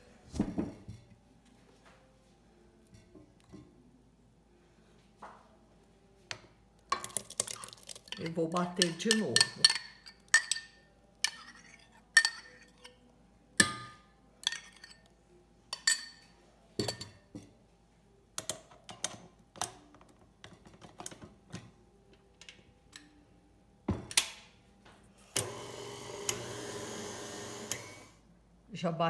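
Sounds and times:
spoon tapping metal bowl: 6.9 - 11.5
stand mixer running: 25.4 - 28.2.

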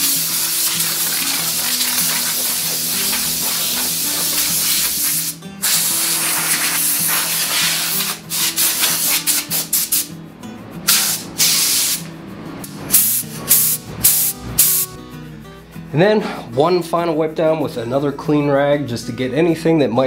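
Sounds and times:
air blow gun hissing: 0.0 - 10.1, 10.9 - 12.1, 12.9 - 15.0
background music: 0.0 - 20.0.

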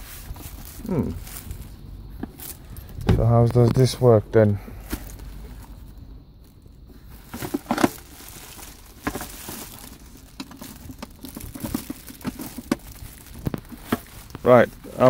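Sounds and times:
plastic wrapping crinkling: 7.1 - 15.0.

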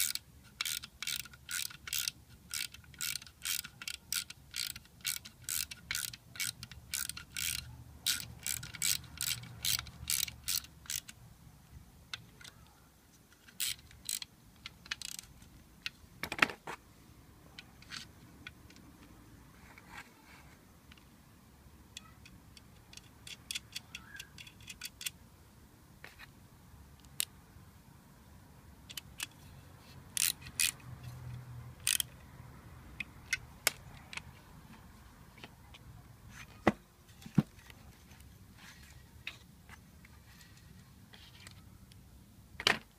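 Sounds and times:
socket ratchet clicking: 0.0 - 11.2, 13.4 - 15.5, 22.0 - 25.2, 27.0 - 27.3, 28.8 - 29.4, 30.1 - 32.2.

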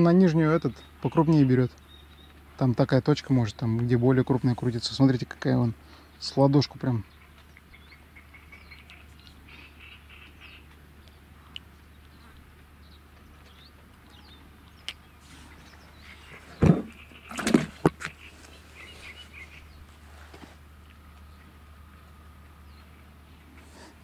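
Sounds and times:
small birds chirping: 0.0 - 24.0
rustles: 7.1 - 24.0.

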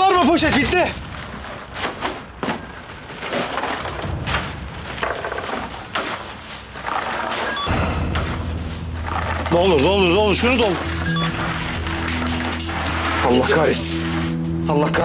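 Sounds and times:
plastic bags crinkling: 0.0 - 7.6.

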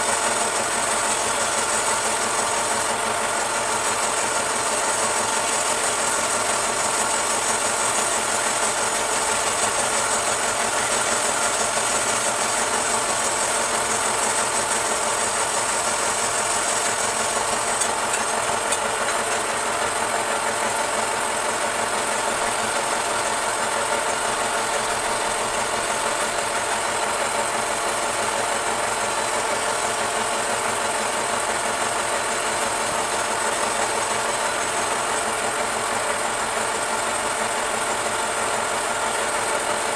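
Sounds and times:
chisel scraping spinning wood: 0.0 - 29.0
wood lathe motor humming: 0.0 - 36.0.

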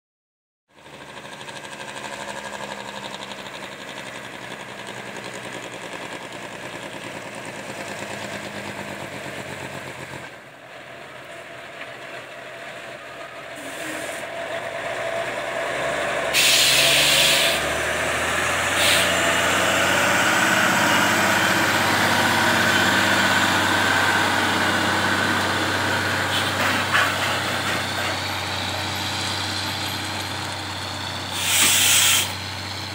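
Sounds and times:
truck diesel engine running: 0.7 - 32.9
air brakes hissing: 13.6 - 14.3, 16.3 - 17.8, 18.7 - 19.3, 26.1 - 29.0, 31.2 - 32.8.

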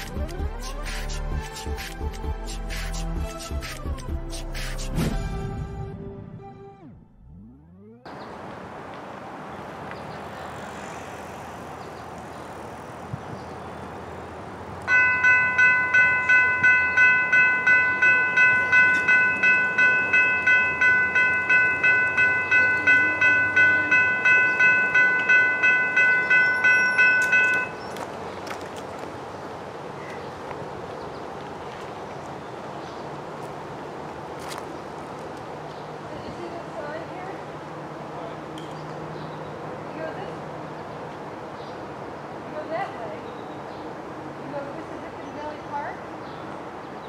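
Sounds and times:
outdoor background noise: 0.0 - 47.0
electronic crossing bell dinging: 14.9 - 27.8.

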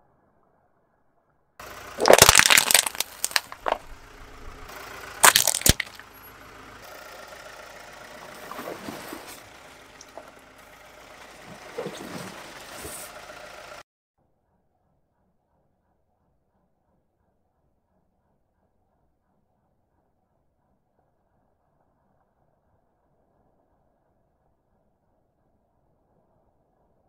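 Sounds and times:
plastic tub cracking under tyre: 1.9 - 4.6, 5.2 - 6.1
soft crunches: 2.0 - 6.1.

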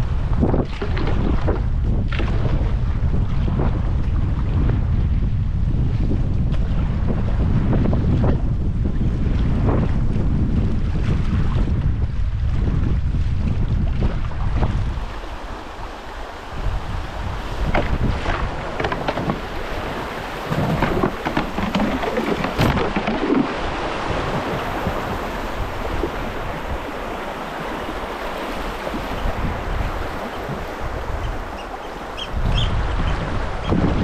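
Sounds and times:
wind rumble on microphone: 0.0 - 34.0
water splashes: 14.0 - 32.2
rushing river water: 14.1 - 34.0.

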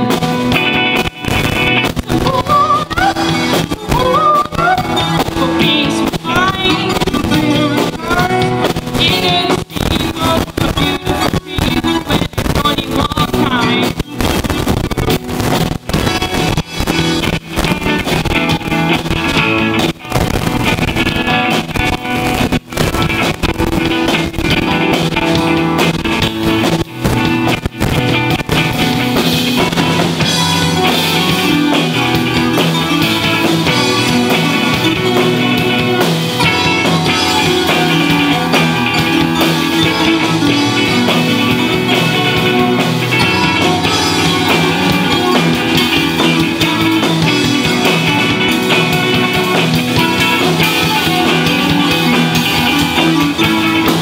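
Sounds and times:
drum kit: 0.0 - 54.0
electric guitars: 0.0 - 54.0
keyboard: 0.0 - 54.0.

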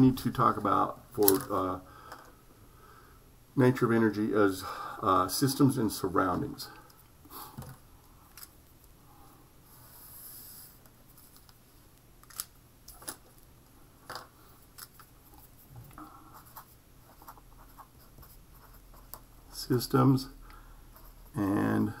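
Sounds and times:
pen scratching on paper: 16.3 - 19.3.

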